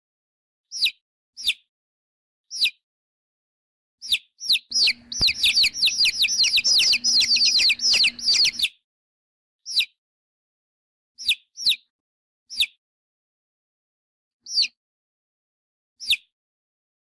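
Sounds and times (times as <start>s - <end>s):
baby chicks peeping: 4.0s - 8.7s.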